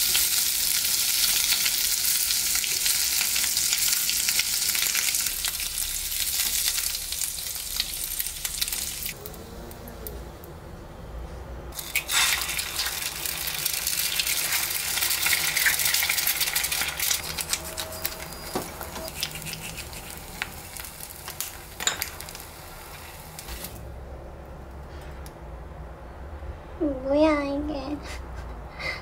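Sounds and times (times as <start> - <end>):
eggs sizzling in a pan: 0.0 - 9.2, 11.8 - 23.9.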